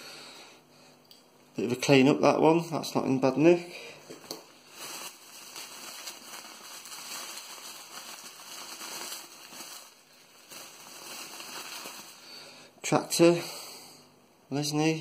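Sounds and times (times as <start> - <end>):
bubble wrap crinkling: 4.1 - 12.6.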